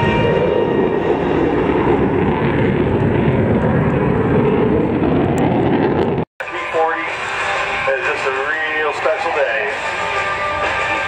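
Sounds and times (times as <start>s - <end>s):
propeller plane engine overhead: 0.0s - 11.0s.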